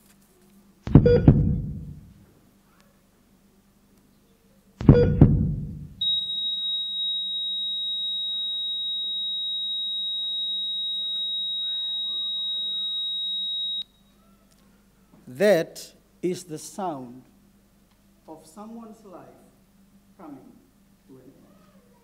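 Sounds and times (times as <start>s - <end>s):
heavy thump: 0.9s - 2.0s, 4.8s - 6.0s
flatline alarm tone: 6.0s - 14.0s.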